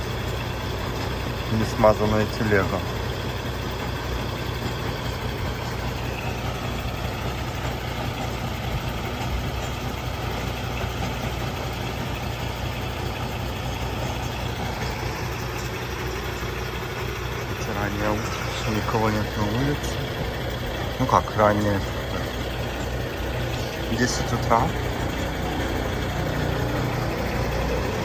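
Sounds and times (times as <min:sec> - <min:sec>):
truck engine running: 0:00.0 - 0:28.0.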